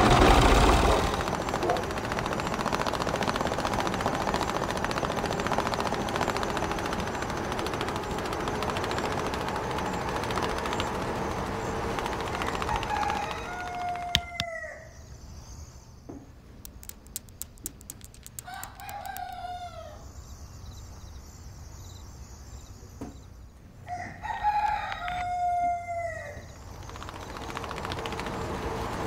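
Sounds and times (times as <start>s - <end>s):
faint high twittering: 0.8s - 24.9s, 26.0s - 29.0s
rooster crowing: 12.4s - 15.0s, 18.4s - 20.1s, 23.8s - 26.6s
light ticks: 16.6s - 19.4s.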